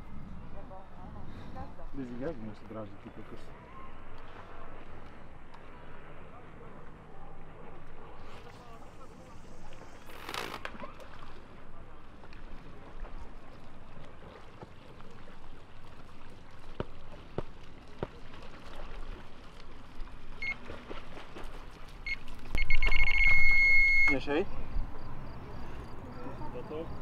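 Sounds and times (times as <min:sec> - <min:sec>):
bite alarm bleeps: 0:22.1 - 0:24.2.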